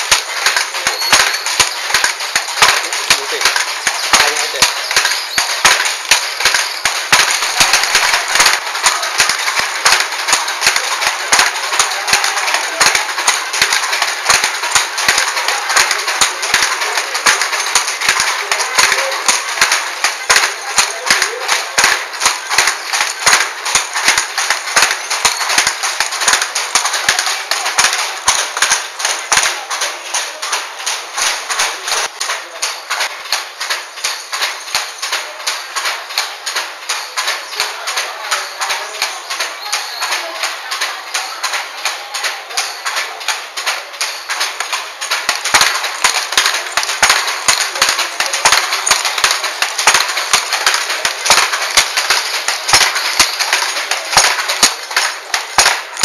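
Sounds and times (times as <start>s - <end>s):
wooden loom clattering: 0.0s - 56.0s.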